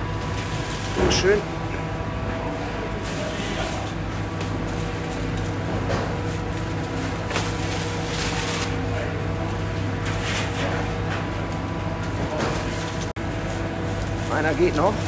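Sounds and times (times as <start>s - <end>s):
bakery machinery humming: 0.0s - 15.0s
parchment and trays scraping: 10.0s - 11.3s.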